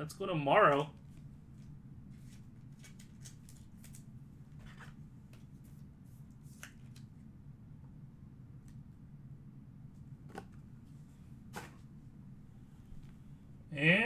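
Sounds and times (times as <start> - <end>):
low steady hum: 0.0 - 14.0
trading cards rustling: 0.7 - 5.8.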